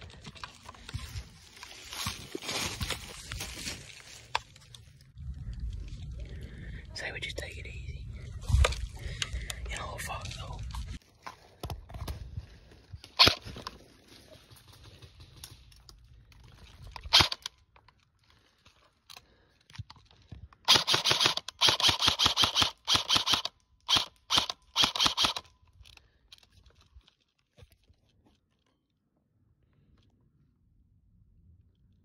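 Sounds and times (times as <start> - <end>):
airsoft rifle shots: 20.7 - 25.4.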